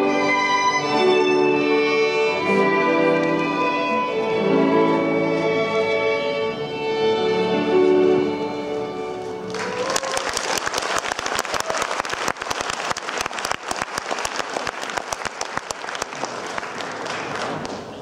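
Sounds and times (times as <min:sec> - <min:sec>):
violin music: 0:00.0 - 0:09.9
audience applauding: 0:09.4 - 0:18.0.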